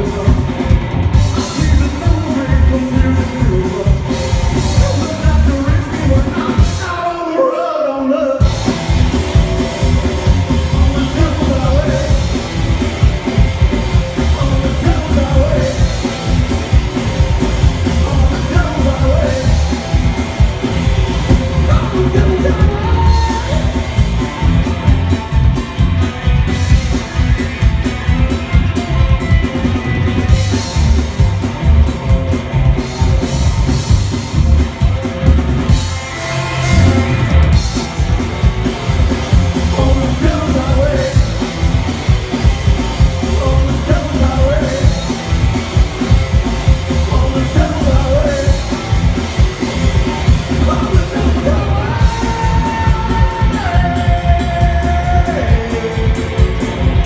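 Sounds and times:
electric guitars: 0.0 - 7.0, 8.3 - 57.0
drum kit: 0.0 - 7.2, 8.4 - 57.0
upright bass: 0.0 - 7.2, 8.4 - 57.0
person singing: 10.4 - 12.4, 14.1 - 20.3, 21.2 - 24.1, 39.5 - 41.5, 43.0 - 45.2, 46.7 - 49.1, 49.9 - 57.0.

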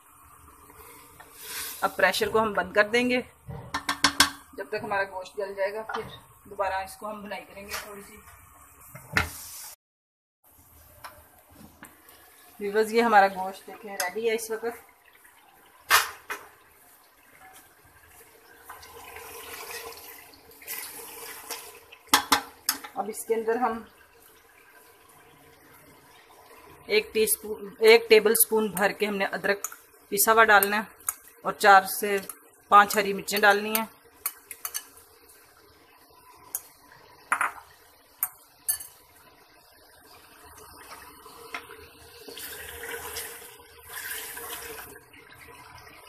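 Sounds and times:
meat sizzling and bubbling: 0.0 - 9.8, 10.5 - 46.0
glass bowl clinking on metal: 38.7 - 39.0.

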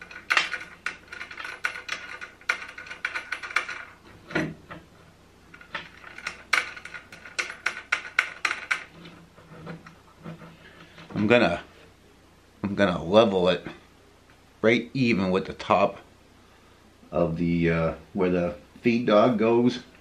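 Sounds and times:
metal nut and washer clinking: 0.0 - 4.9, 5.5 - 10.4.

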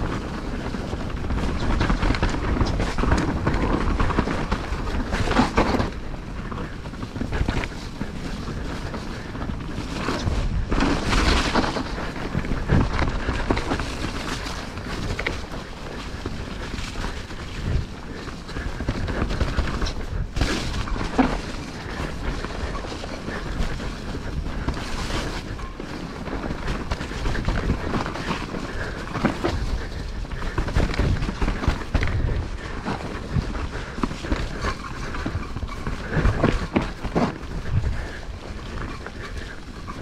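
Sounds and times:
bike knocking and rattling: 0.0 - 40.0
bike tyres rumbling on trail: 0.0 - 40.0.

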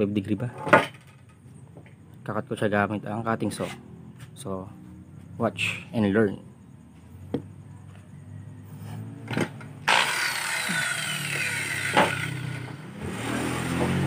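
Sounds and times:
circular saw running: 9.8 - 13.2.

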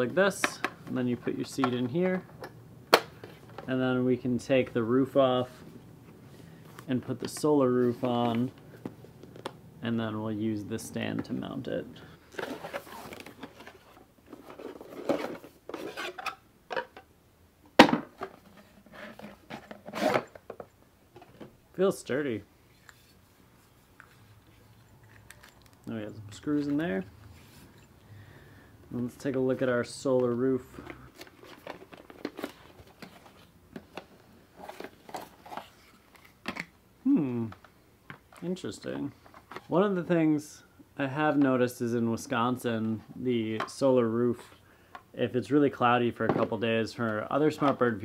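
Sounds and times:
cardboard packaging rustling: 12.2 - 16.3, 23.0 - 27.8, 30.2 - 36.6
plastic parts clattering: 12.3 - 17.1, 30.8 - 36.7.

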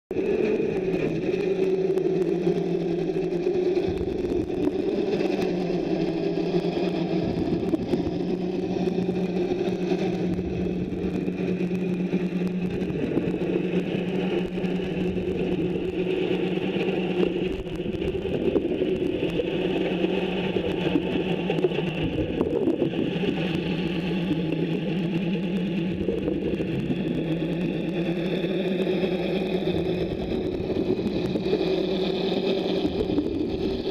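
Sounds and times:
underwater machine hum: 0.1 - 33.9.

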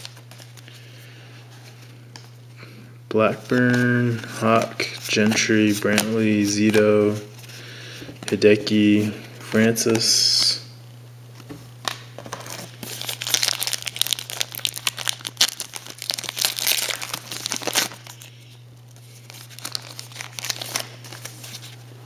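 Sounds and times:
foil wrapper crinkling and tearing: 0.0 - 0.8, 12.2 - 21.8.

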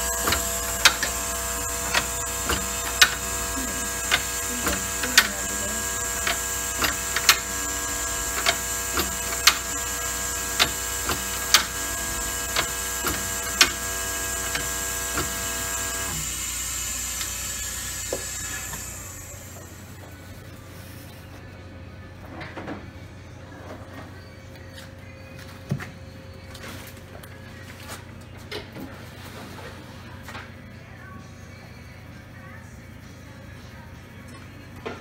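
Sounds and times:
machine hum: 0.0 - 20.4.

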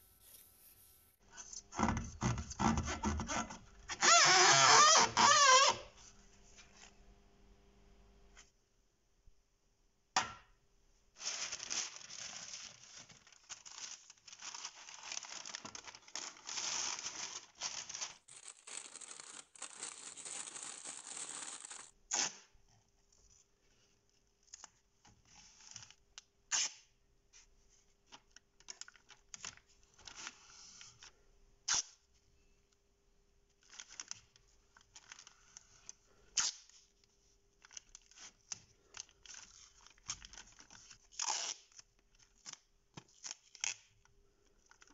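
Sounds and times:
tape tearing and crackling: 11.3 - 22.4
masking tape ripping off roll: 16.2 - 22.4.

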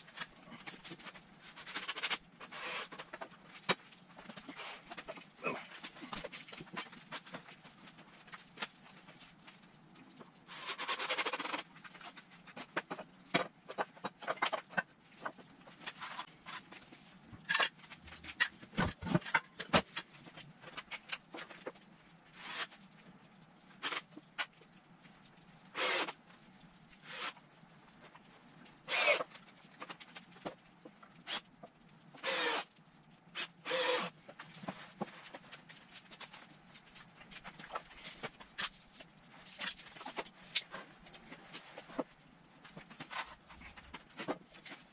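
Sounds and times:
power drill driving screws into wood: 1.9 - 3.0, 25.8 - 26.2, 28.9 - 29.3, 32.2 - 32.7, 33.4 - 34.1
wood and tools clattering: 10.2 - 21.7, 28.9 - 30.6.

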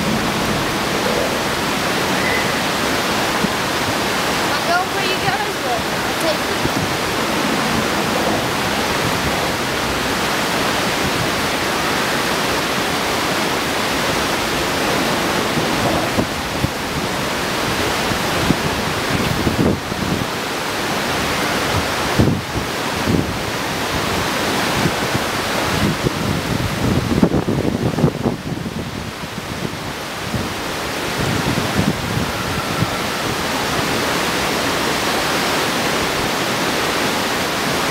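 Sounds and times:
creek water rushing over rapids: 0.0 - 37.9.

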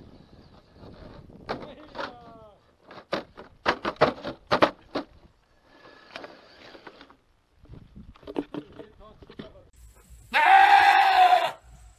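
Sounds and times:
gritty scraping: 0.4 - 10.7.

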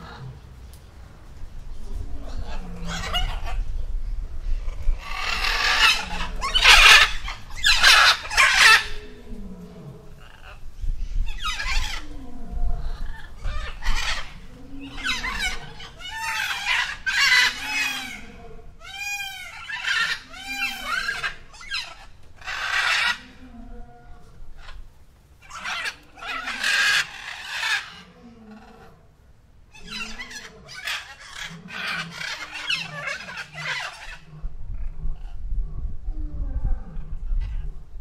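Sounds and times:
peacock calling: 2.2 - 3.8, 4.7 - 29.0, 29.7 - 34.3.

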